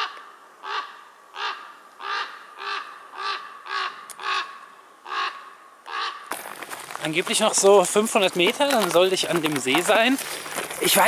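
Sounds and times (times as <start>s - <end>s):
crow cawing: 0.0s - 6.4s.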